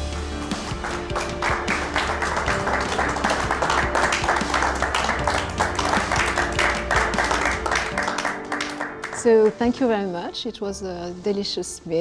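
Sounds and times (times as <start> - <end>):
background music: 0.0 - 12.0
people applauding: 0.5 - 9.6.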